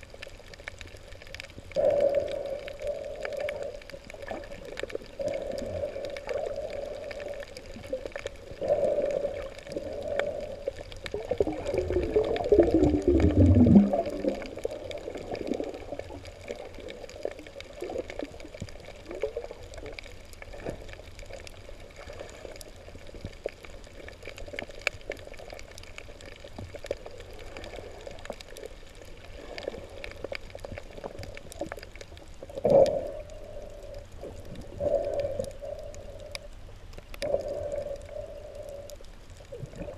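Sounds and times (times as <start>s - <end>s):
muffled underwater water noise: 0.0s - 39.9s
gurgling rush: 5.1s - 16.1s.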